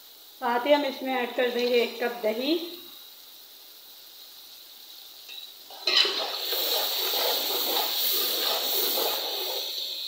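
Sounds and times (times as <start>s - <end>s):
oil sizzling: 0.0s - 10.0s
spoon stirring and scraping: 5.4s - 9.8s.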